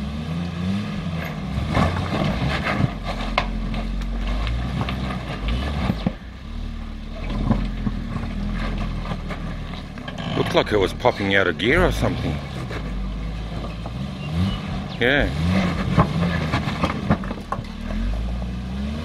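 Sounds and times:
engine revving under load: 0.0 - 19.0
person speaking: 10.2 - 12.5, 15.0 - 15.5.

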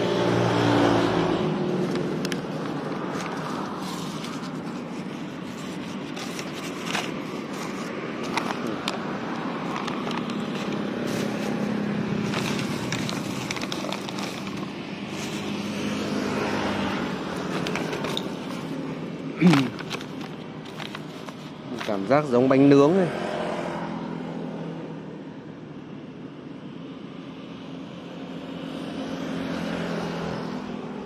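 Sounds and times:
street traffic hum: 0.0 - 31.0
bags crinkling and rustling: 1.7 - 22.3.

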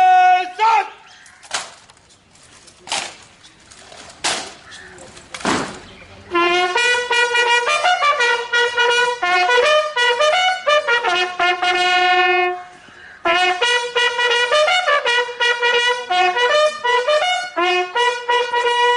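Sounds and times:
bugle call: 6.3 - 18.9.

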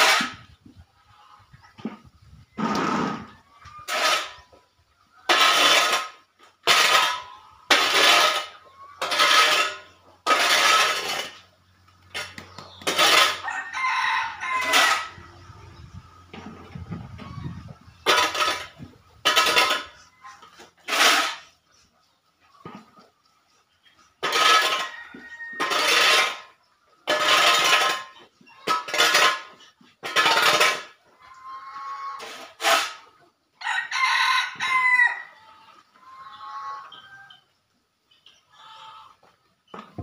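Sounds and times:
shovel scraping concrete floor: 0.0 - 0.5, 2.6 - 4.5, 5.3 - 15.2, 18.0 - 21.6, 24.2 - 31.0, 32.2 - 33.1
rooster crowing: 13.3 - 15.3, 33.6 - 35.4.

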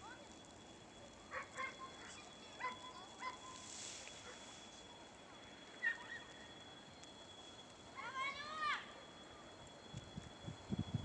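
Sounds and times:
high-pitched whine: 0.0 - 11.0
faint animal calls: 5.8 - 6.5.

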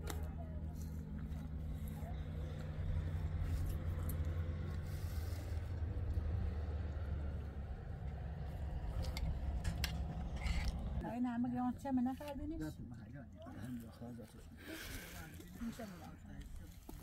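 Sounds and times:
engine running hum: 0.0 - 11.1.

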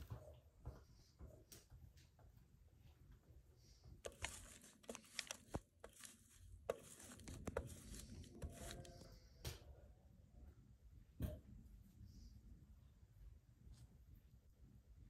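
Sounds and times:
grating on metal box grater: 4.1 - 9.0.

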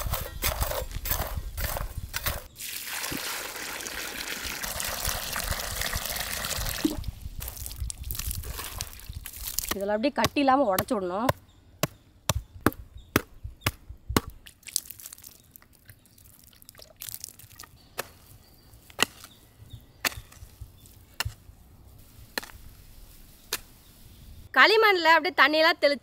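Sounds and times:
hoe chopping into clay soil: 0.0 - 2.5, 18.0 - 21.5, 22.3 - 22.7, 23.5 - 23.8.

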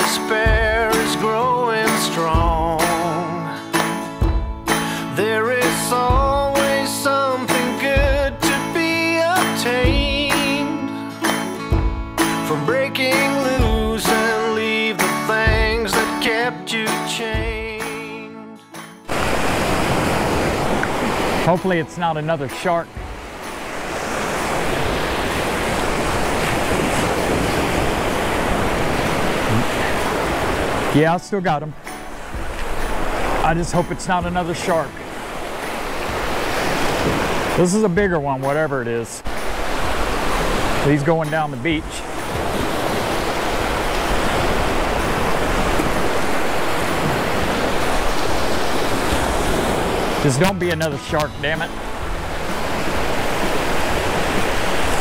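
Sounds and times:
ocean surf breaking: 0.0 - 17.1, 19.1 - 55.0
wind rumbling on microphone: 23.9 - 30.9.

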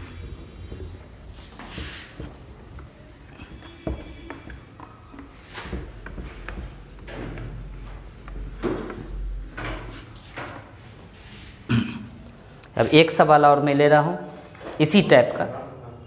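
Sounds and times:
eraser rubbing whiteboard: 0.0 - 11.7.

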